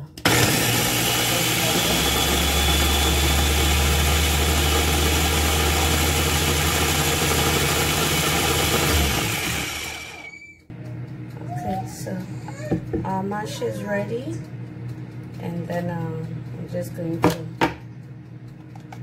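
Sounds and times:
blender motor running: 0:00.1 - 0:10.6.

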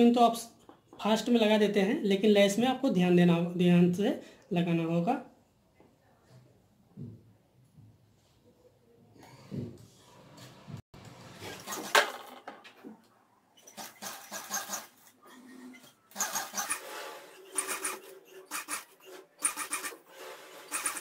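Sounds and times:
sewing machine stitching: 0:11.1 - 0:12.3, 0:13.6 - 0:21.0.

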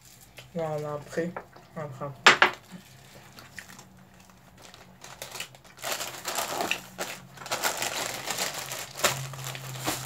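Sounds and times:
plastic wrappers crinkling: 0:02.6 - 0:10.0.

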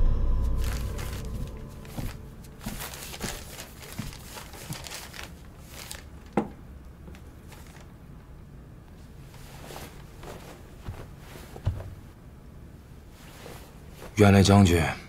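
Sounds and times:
sharp knock: 0:00.0 - 0:02.9
paper rustling and crinkling: 0:00.6 - 0:08.0.

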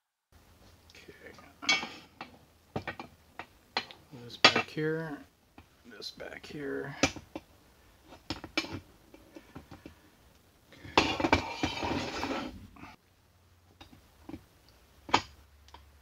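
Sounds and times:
heavy metal scrape: 0:10.9 - 0:13.0.

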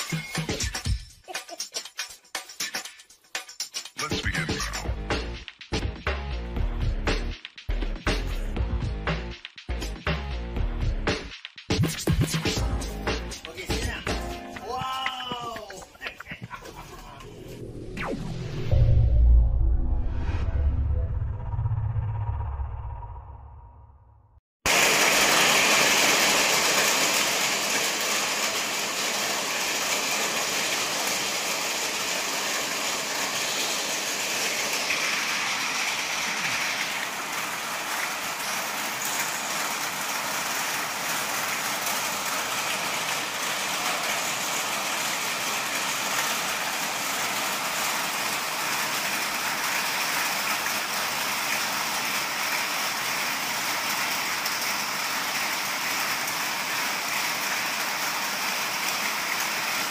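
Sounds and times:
steady rain hiss: 0:12.5 - 0:17.3, 0:24.7 - 0:59.9.

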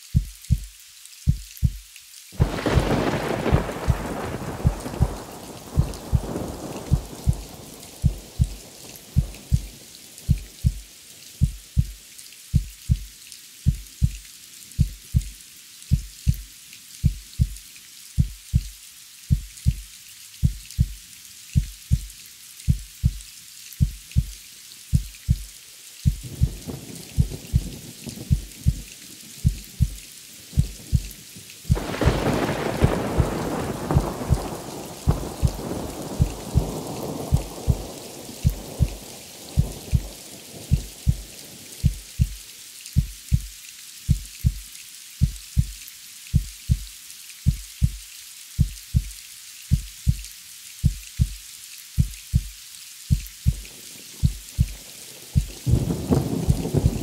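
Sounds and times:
rain falling: 0:00.0 - 0:57.0
heartbeat thumps: 0:00.1 - 0:13.1, 0:13.7 - 0:14.2, 0:14.8 - 0:17.6, 0:18.2 - 0:21.0, 0:21.6 - 0:22.1, 0:22.7 - 0:23.2, 0:23.8 - 0:30.0, 0:30.6 - 0:39.0, 0:39.6 - 0:42.4, 0:43.0 - 0:43.5, 0:44.1 - 0:44.6, 0:45.2 - 0:46.9, 0:47.5 - 0:48.0, 0:48.6 - 0:51.4, 0:52.0 - 0:54.8, 0:55.4 - 0:57.0
loud thunderclap: 0:02.4 - 0:09.7, 0:31.7 - 0:40.1, 0:55.4 - 0:57.0
thunder rumbling: 0:02.4 - 0:10.8, 0:26.1 - 0:30.0, 0:31.7 - 0:42.4, 0:53.4 - 0:57.0.

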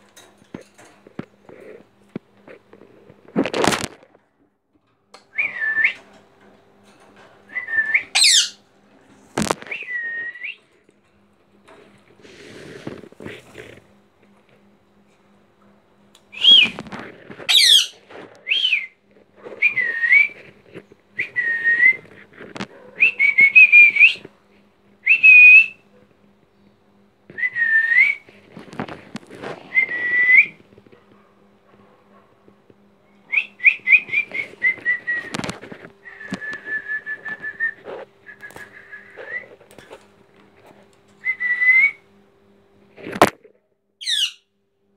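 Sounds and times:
faint steady hum: 0:00.0 - 0:44.9
parakeet whistling short calls: 0:07.9 - 0:08.6, 0:17.5 - 0:18.9, 0:44.0 - 0:44.4
parakeet high screeches: 0:08.1 - 0:08.6, 0:17.5 - 0:18.8, 0:44.0 - 0:44.4.

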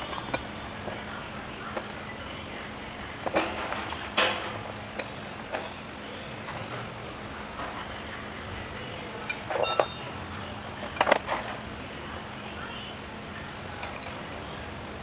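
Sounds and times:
steady background noise: 0:00.0 - 0:15.0
steel ball bearings clinking: 0:09.2 - 0:10.1
metal parts knocking and clinking: 0:09.3 - 0:10.0.

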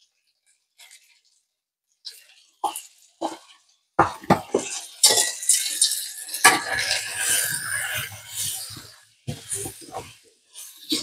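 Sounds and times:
seasoning shaker rattling: 0:04.7 - 0:11.0.

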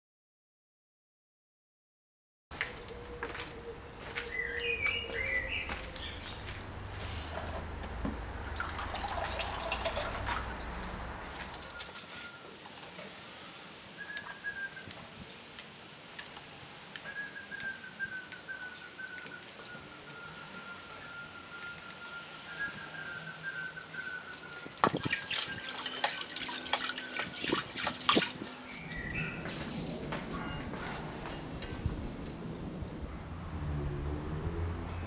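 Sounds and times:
small birds chirping: 0:02.5 - 0:16.4, 0:17.0 - 0:31.5
hose water running into tub: 0:06.9 - 0:12.1, 0:23.8 - 0:29.0.

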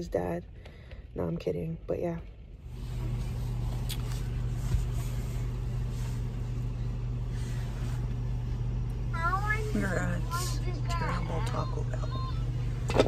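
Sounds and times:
car engine hum inside cabin: 0:01.2 - 0:13.0.

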